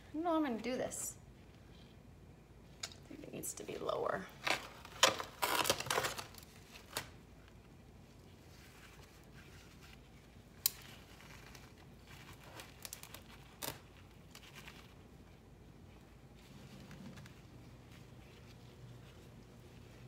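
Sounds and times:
rustling and crunching soil: 4.2s - 20.0s.

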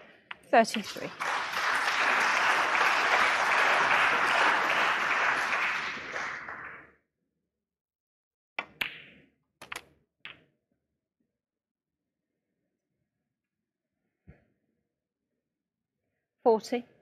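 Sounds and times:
audience applause: 0.7s - 6.8s
ball dropping into pocket: 8.6s - 10.4s
snooker balls cracking together: 8.6s - 10.4s.

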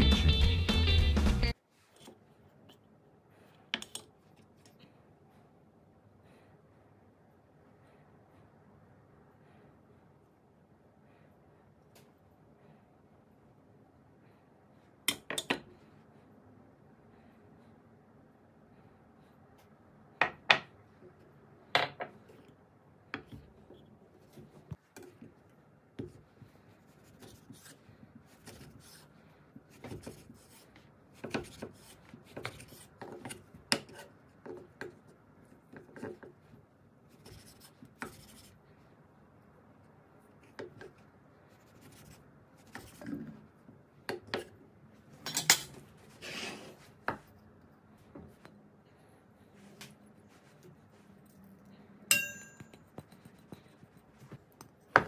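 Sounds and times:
steel bowl knocking and clinking: 52.1s - 52.8s.

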